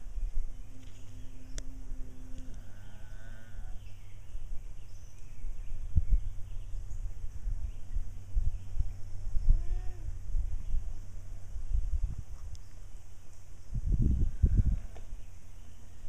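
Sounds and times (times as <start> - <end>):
low rumble: 0.0 - 16.0
llama humming: 0.6 - 4.2, 9.4 - 10.2.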